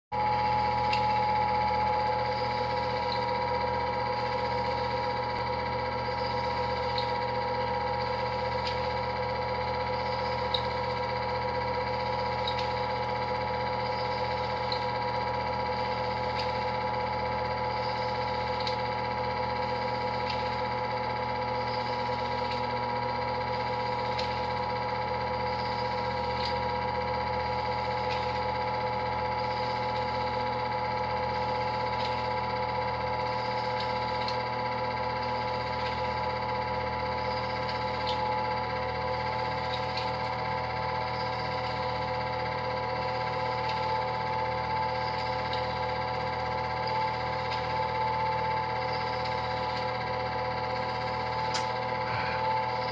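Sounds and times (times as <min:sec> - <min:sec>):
film projector motor hum: 0:00.1 - 0:52.9
faint projector ticks: 0:10.0 - 0:10.9, 0:11.5 - 0:15.0, 0:37.2 - 0:38.3.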